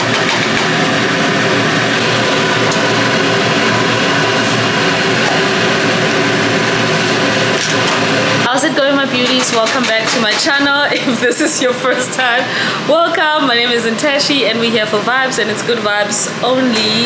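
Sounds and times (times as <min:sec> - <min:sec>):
machine engine drone: 0:00.0 - 0:16.6.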